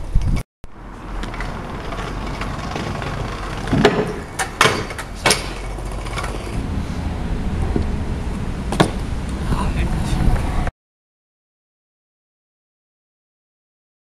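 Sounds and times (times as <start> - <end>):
scooter wheels rumbling: 0.0 - 10.7
scooter wheels clacking on ramp: 1.2 - 6.6.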